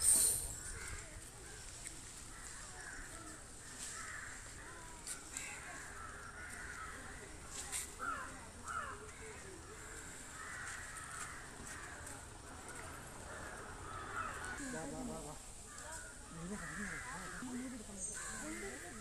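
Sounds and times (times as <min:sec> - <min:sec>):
bird chatter: 0:00.0 - 0:14.9, 0:15.7 - 0:19.0
crows cawing: 0:02.3 - 0:04.7, 0:05.4 - 0:07.3, 0:08.0 - 0:12.1, 0:12.7 - 0:15.1, 0:15.7 - 0:19.0.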